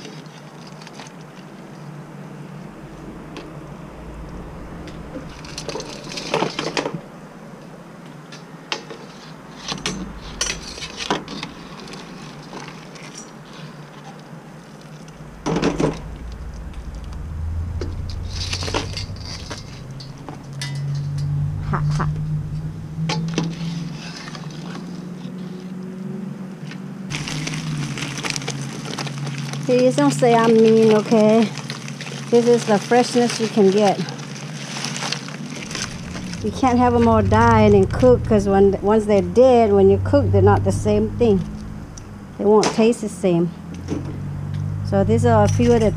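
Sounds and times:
steady low hum: 1.7 - 8.0, 9.4 - 13.3, 15.0 - 23.4, 35.5 - 42.6, 43.5 - 45.9.

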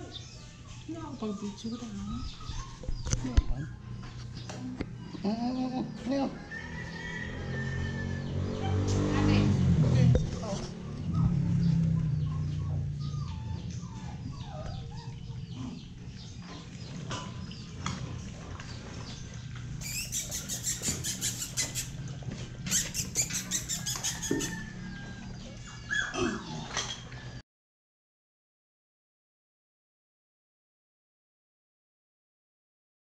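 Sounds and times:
puppies whimpering and squeaking: 0.0 - 9.0, 10.2 - 27.4.

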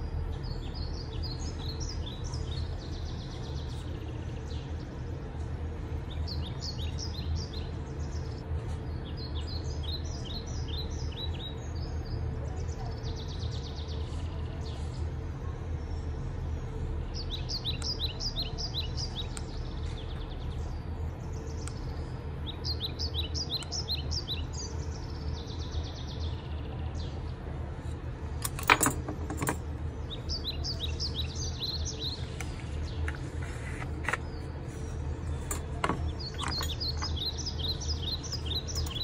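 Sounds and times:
low background rumble: 0.0 - 39.0
bird chirping: 17.1 - 27.2, 30.1 - 39.0.

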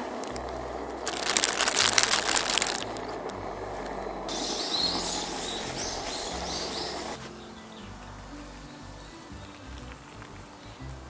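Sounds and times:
leaves rustling: 0.0 - 11.0
plastic bag crinkling: 0.2 - 0.4, 1.0 - 3.2
small birds chirping: 4.3 - 11.0.

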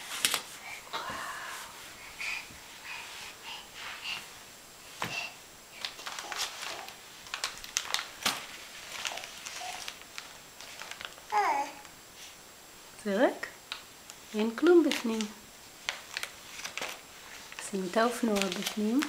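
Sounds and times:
baby breathing sounds: 0.5 - 5.8
fabric bag rustling: 5.9 - 11.6, 14.4 - 19.0.

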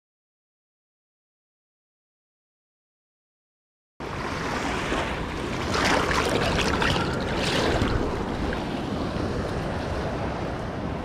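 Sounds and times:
small waves washing on sand: 4.0 - 11.0
wind on microphone: 4.0 - 11.0.

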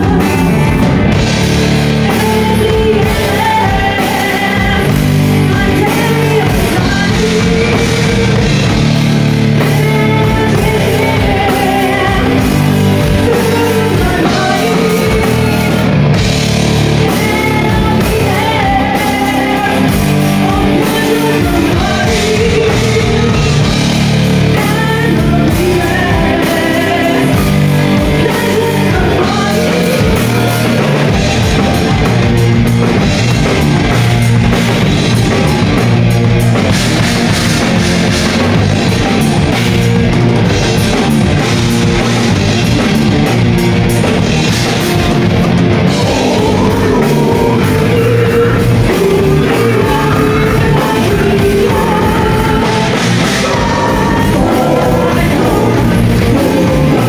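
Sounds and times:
woman singing: 0.0 - 0.9, 2.0 - 8.8, 9.4 - 16.0, 16.7 - 32.2, 45.9 - 57.0
heavy metal band playing: 0.0 - 57.0.

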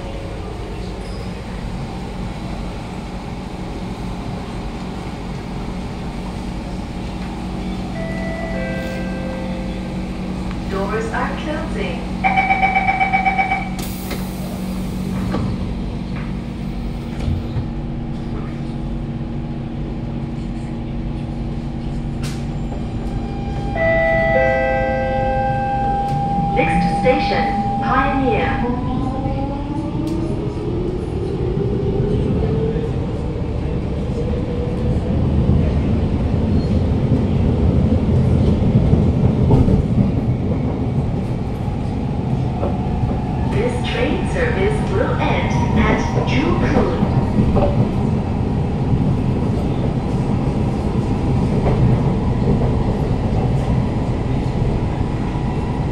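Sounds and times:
train equipment hum: 0.0 - 55.9
pulsing two-tone warning beeps: 12.2 - 13.8, 23.8 - 28.6
train doors hissing shut: 13.7 - 15.6.

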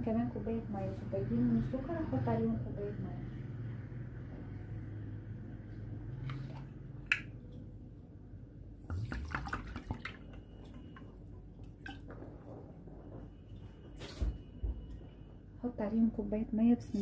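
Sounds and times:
water dripping and splashing: 8.9 - 12.2.

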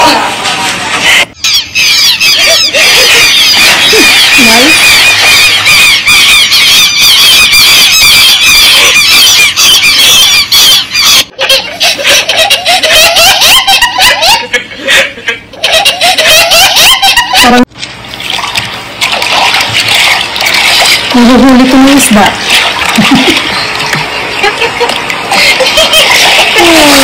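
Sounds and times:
chimpanzee laughing: 0.0 - 17.7, 20.8 - 27.0
water sounds: 17.8 - 27.0.

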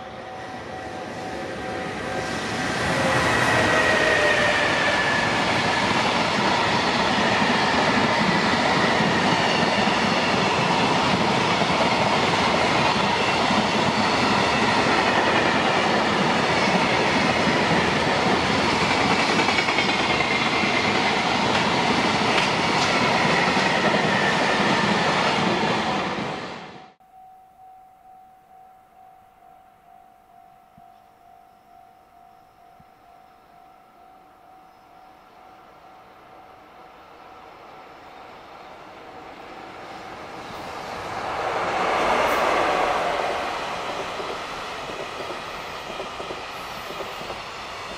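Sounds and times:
train wheels rumbling on rail: 0.0 - 26.9, 38.7 - 47.9.

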